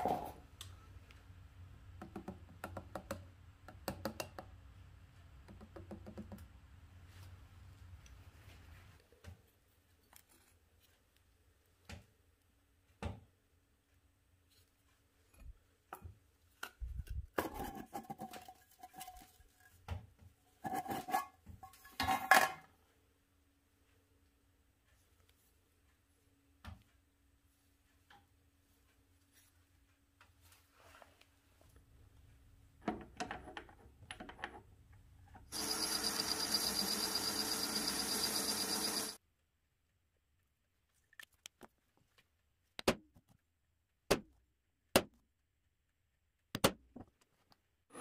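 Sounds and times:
fast high-pitched pulsing: 35.6s - 39.2s
metal lathe cutting aluminium: 35.6s - 39.2s.

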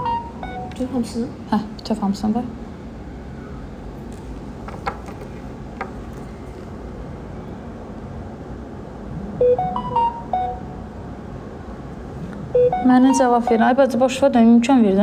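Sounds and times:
phone chime beeping tones: 0.0s - 0.8s, 9.4s - 10.7s, 12.6s - 13.8s
room noise: 0.0s - 15.0s.

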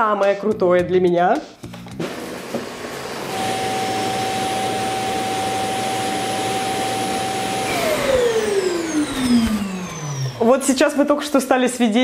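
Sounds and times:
suction motor whining: 3.2s - 10.7s.

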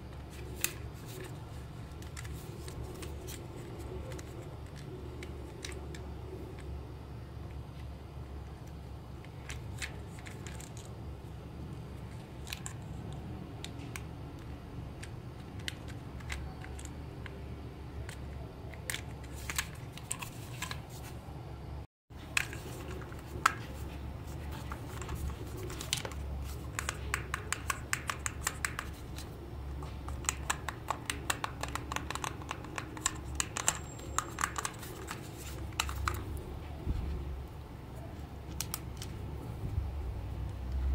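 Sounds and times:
steady low hum: 0.0s - 40.9s
plastic clicks and taps: 24.7s - 36.3s.

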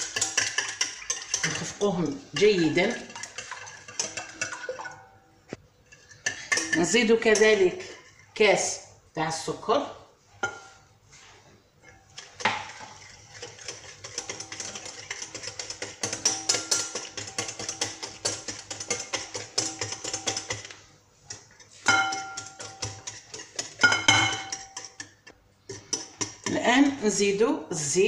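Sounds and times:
whisk clicking against glass bowl: 0.0s - 1.8s, 2.4s - 5.0s, 13.3s - 26.6s.

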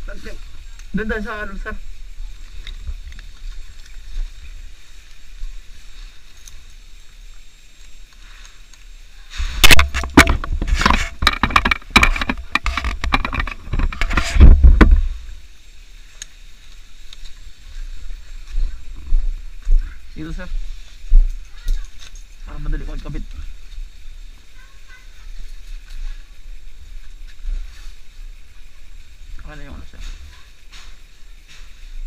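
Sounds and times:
loud knocks and rustles: 9.6s - 15.2s.

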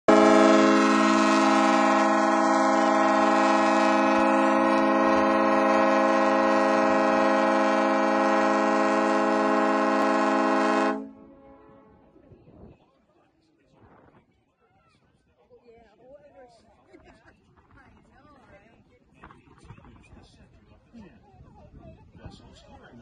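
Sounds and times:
boat horn blast: 0.1s - 12.2s.

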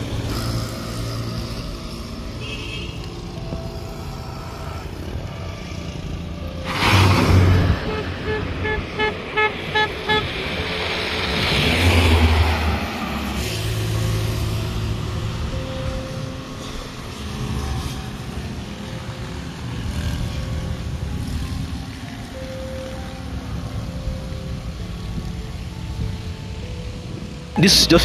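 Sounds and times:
engine hum: 0.0s - 28.0s
vehicle passing: 3.6s - 28.0s
car horn tooting: 7.7s - 10.4s.

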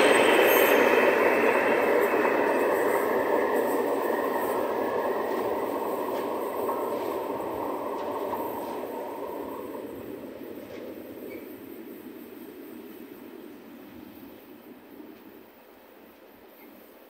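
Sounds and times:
freight train rumbling: 0.0s - 17.0s.

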